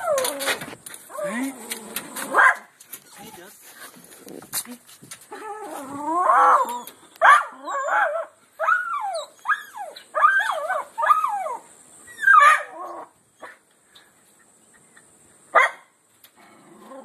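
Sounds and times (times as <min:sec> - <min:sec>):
small dog whining and yelping: 0:05.3 - 0:13.6.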